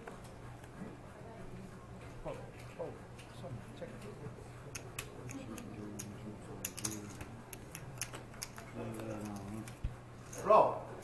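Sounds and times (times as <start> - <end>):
poker chips clicking: 4.8 - 9.8.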